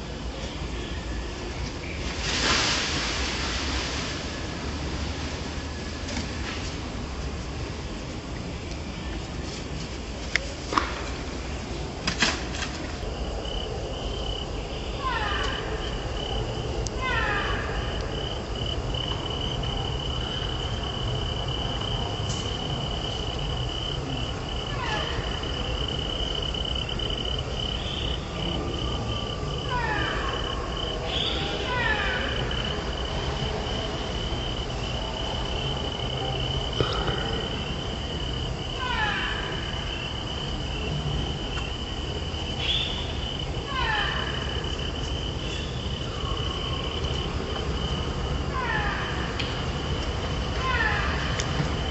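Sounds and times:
insect high-pitched drone: 13.0 - 51.9.

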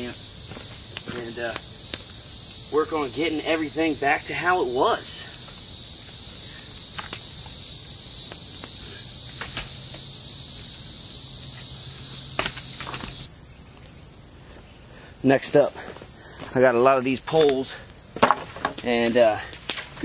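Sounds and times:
insects droning: 0.0 - 20.0
faint snaps: 6.9 - 7.3.

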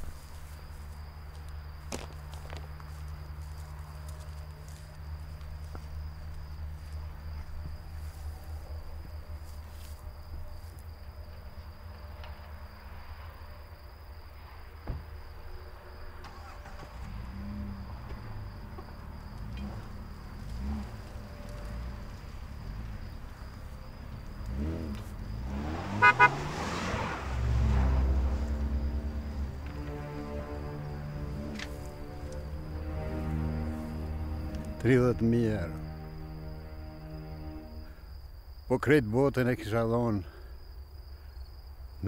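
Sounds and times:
car engine rumbling: 0.0 - 38.6
car horn toots: 25.8 - 26.5.

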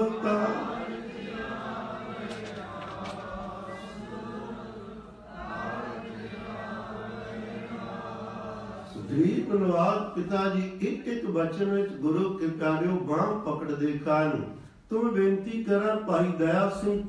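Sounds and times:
congregation singing in unison: 0.0 - 9.9.

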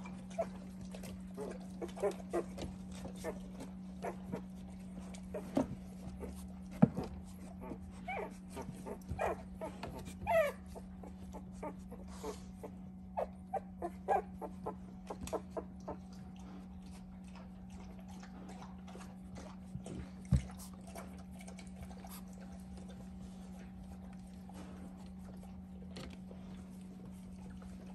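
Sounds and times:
puppies whimpering: 0.0 - 6.5, 7.4 - 16.1
low steady hum: 0.0 - 27.9.

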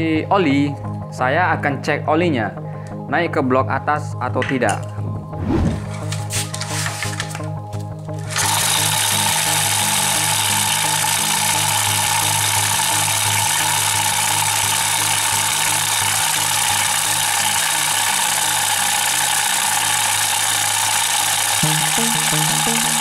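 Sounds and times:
small generator engine running: 8.2 - 23.0.

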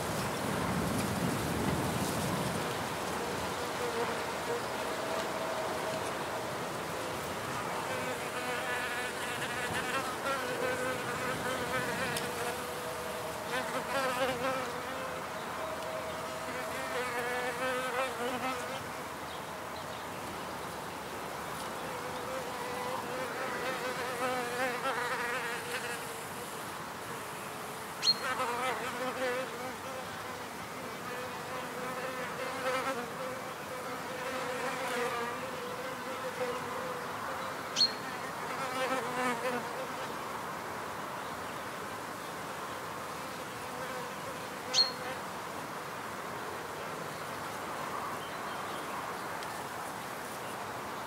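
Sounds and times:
bees buzzing: 2.6 - 18.9.

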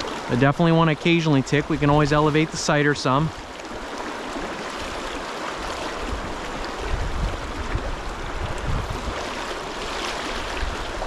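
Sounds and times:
stream rushing over rocks: 0.0 - 11.0
low microphone rumbling: 6.8 - 9.2.

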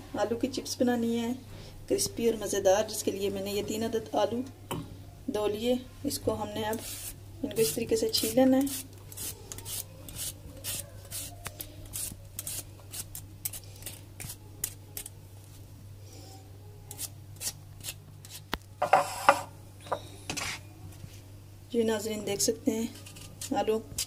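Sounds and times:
peeler scraping potato skin: 6.7 - 15.1, 16.9 - 19.3.

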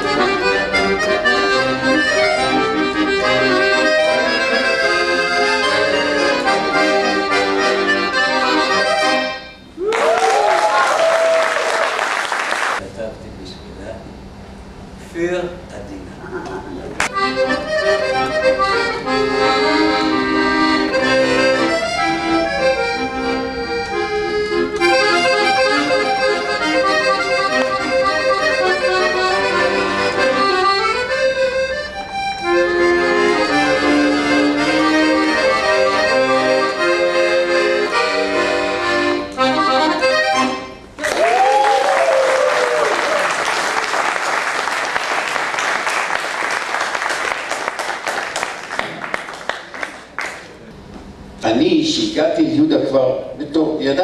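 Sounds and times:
accordion melody: 0.0 - 9.8, 17.0 - 41.0
audience applause: 9.8 - 12.8, 41.0 - 50.6.

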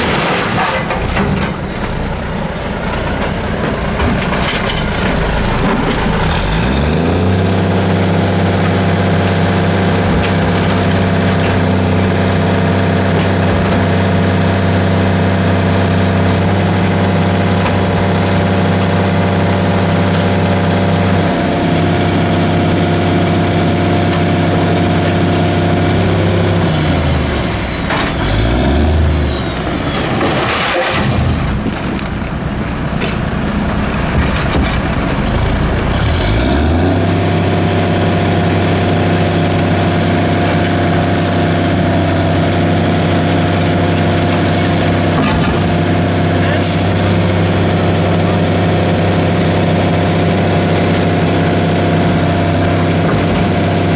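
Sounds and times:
diesel truck engine revving: 1.0 - 31.7, 34.8 - 53.9
hydraulic arm knocks and clatter: 3.2 - 6.3, 34.0 - 35.7.

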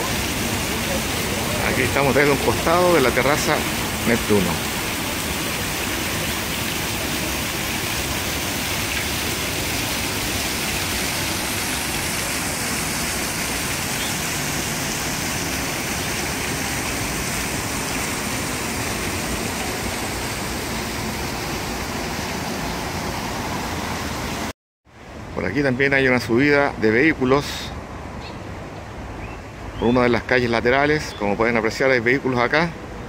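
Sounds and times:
fountain water splashing: 0.0 - 24.5.

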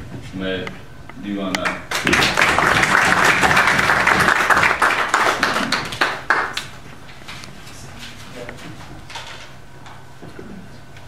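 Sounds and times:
audience applauding: 1.9 - 6.7.

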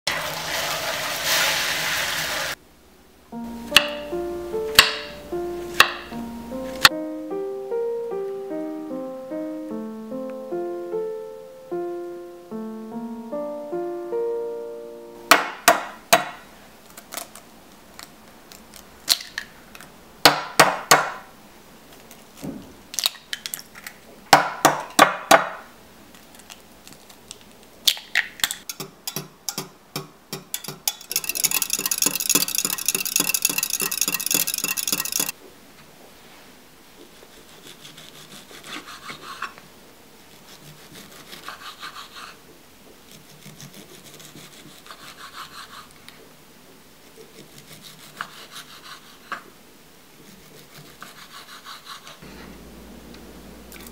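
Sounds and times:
eggs knocked against glass jug: 28.8 - 35.3
eggs beaten in glass jug: 30.3 - 35.3.

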